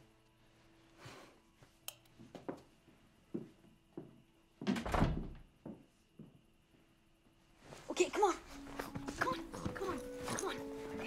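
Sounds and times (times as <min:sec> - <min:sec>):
bedding rustling: 0:07.4 - 0:11.0.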